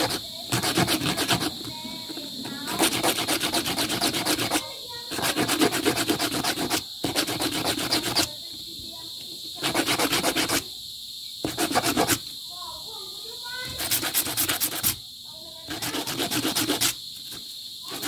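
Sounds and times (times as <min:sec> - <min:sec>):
hand file rasping on wire: 0:00.0 - 0:08.3, 0:09.6 - 0:10.6, 0:11.4 - 0:12.2, 0:13.7 - 0:15.0, 0:15.6 - 0:18.0.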